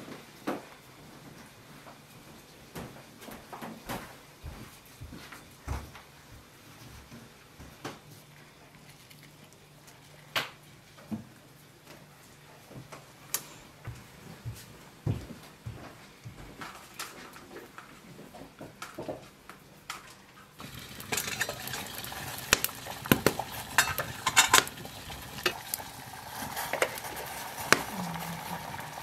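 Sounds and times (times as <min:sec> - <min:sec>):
wood fire crackling: 0:18.9 - 0:29.0
water boiling in kettle: 0:20.6 - 0:29.0.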